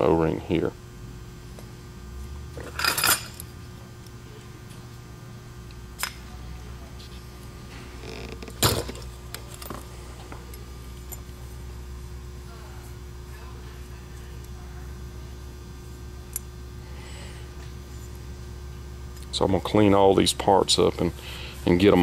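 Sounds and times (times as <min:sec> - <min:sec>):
low steady hum: 0:00.0 - 0:22.0
metal parts clattering: 0:02.6 - 0:03.4.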